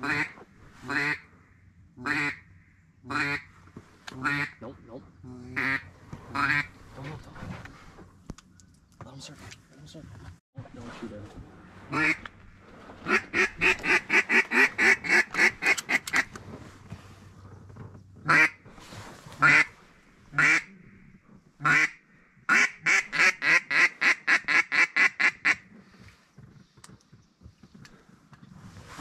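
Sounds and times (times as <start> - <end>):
duck call quacks: 13.1 - 16.3, 20.4 - 20.7, 21.6 - 25.6.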